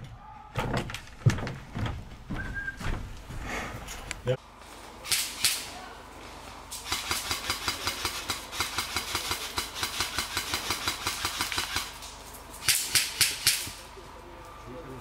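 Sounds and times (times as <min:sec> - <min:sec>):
airsoft gun rapid fire: 0:06.8 - 0:12.0.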